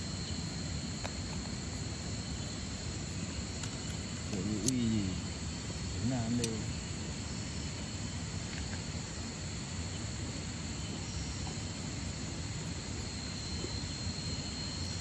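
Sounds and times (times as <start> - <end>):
high-pitched insect drone: 0.0 - 15.0
faint ticks: 3.6 - 5.0, 6.0 - 6.6.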